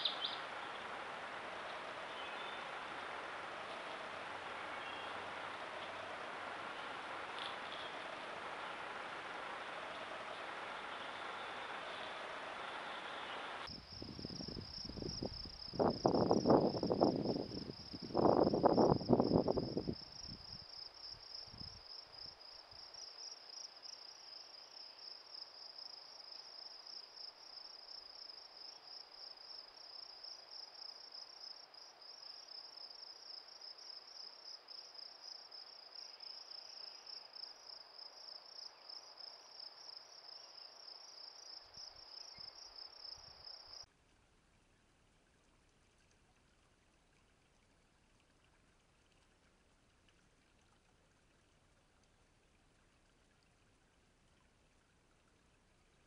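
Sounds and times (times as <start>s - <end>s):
high insect trill: 12.5s - 43.9s.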